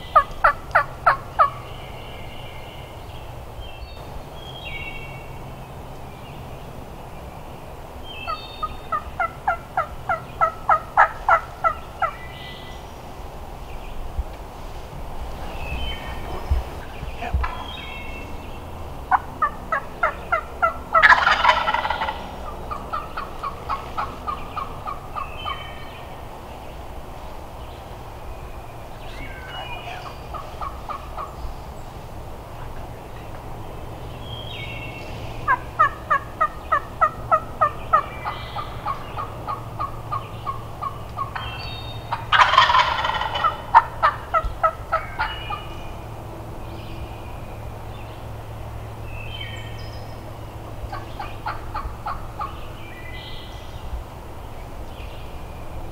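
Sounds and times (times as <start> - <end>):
turkeys yelping: 0.0 - 1.8, 8.2 - 12.6, 19.0 - 26.0, 29.0 - 31.4, 35.4 - 46.0, 50.9 - 53.8
turkey rattling gobble: 0.1 - 1.6, 8.3 - 12.2, 19.1 - 25.6, 29.5 - 31.4, 35.5 - 45.7, 50.9 - 52.6.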